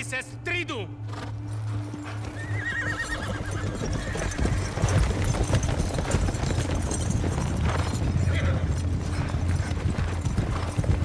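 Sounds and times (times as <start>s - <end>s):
horse hooves clopping: 1.0s - 11.0s
horse whinnying: 2.0s - 7.3s, 7.9s - 8.9s.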